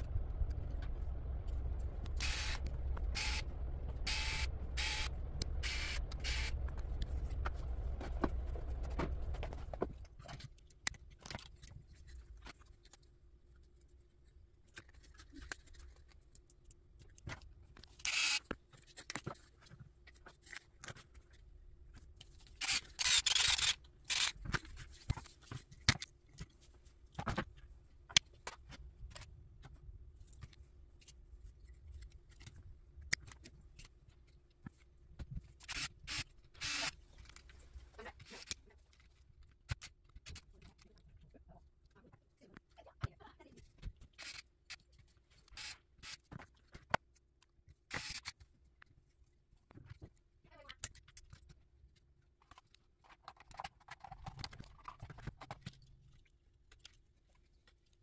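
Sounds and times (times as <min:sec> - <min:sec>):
scratchy bursts: 0:02.2 - 0:03.4.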